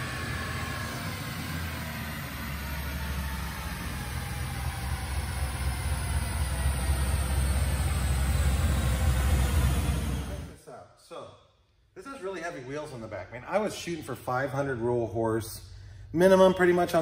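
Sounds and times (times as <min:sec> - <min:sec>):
engine revving on a dyno: 0:00.0 - 0:10.6.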